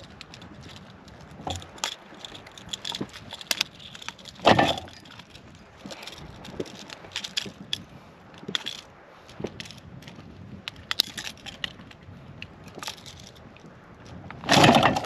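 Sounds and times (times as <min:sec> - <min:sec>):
fish and lure clicking and rattling: 0:00.0 - 0:15.0.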